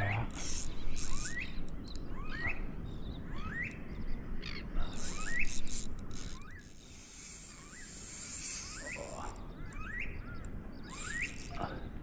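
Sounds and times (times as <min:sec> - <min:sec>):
fishing reel clicking and hissing: 0:00.3 - 0:02.0, 0:04.9 - 0:09.4, 0:10.9 - 0:11.6.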